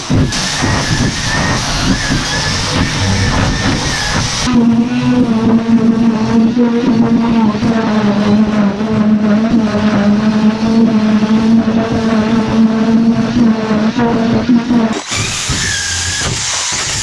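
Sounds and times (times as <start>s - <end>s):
high steady whine: 0.0s - 4.9s
power tool scraping rust off steel: 0.3s - 4.5s.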